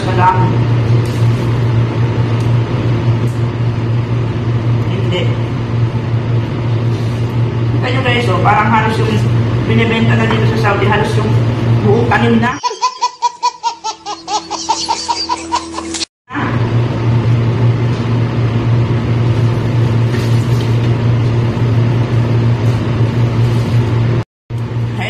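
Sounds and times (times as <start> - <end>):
baby laughing: 12.6 - 16.1.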